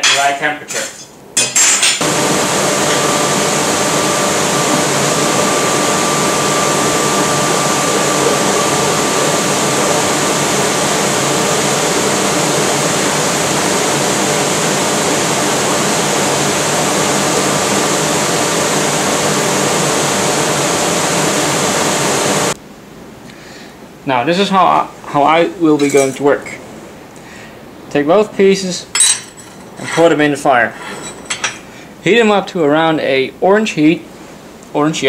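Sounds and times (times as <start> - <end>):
electric fan blowing air: 1.2 - 35.0.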